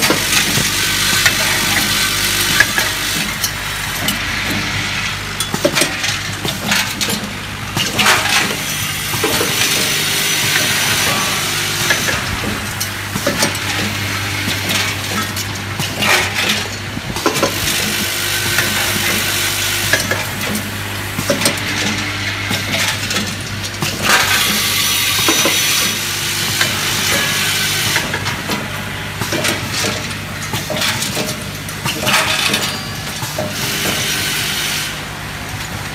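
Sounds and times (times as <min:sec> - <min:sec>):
machine low hum: 0:00.0 - 0:35.9
metal parts rattling in feeder bowls: 0:21.3 - 0:34.3.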